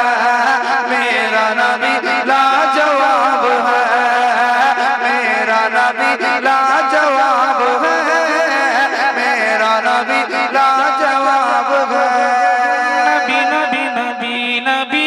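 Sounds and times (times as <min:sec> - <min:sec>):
man singing devotional chant: 0:00.0 - 0:15.0.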